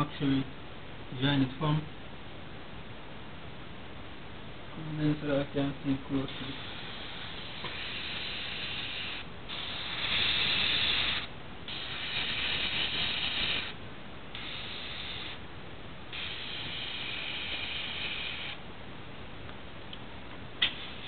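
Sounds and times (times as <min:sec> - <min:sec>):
airbrush spraying hissing bursts: 0:06.1 - 0:15.4, 0:16.1 - 0:18.6, 0:20.6 - 0:21.0.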